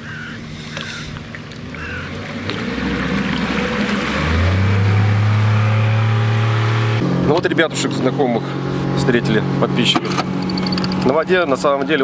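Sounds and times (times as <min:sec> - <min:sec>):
water hissing from wake: 0:00.1 - 0:02.0
outboard motor speeding up: 0:00.1 - 0:12.0.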